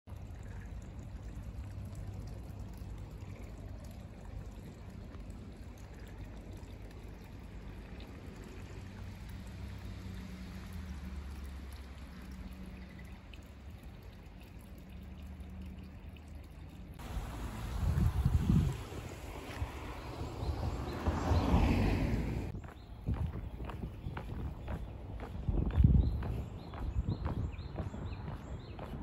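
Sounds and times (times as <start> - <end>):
water trickling in a ditch: 0.0 - 29.0
steady low rumble: 22.0 - 29.0.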